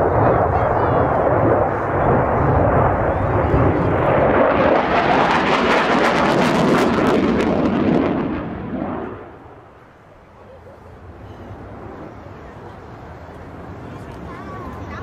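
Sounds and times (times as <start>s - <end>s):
loud jet noise with crackle: 0.0s - 10.0s.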